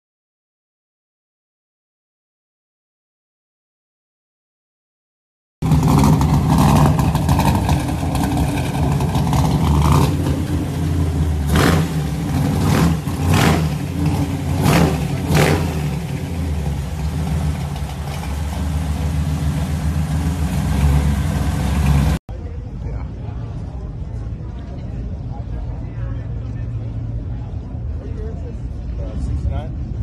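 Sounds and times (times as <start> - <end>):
pickup engine idling and revving: 5.6 - 22.2.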